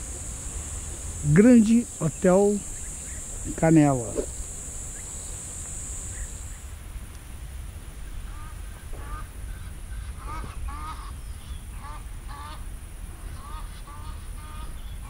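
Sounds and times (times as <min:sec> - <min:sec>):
high insect buzz: 0:00.0 - 0:09.4
low steady rumble: 0:00.0 - 0:12.1
waterfowl honking calls: 0:08.3 - 0:09.3, 0:10.0 - 0:11.2, 0:11.8 - 0:12.6, 0:13.3 - 0:14.8.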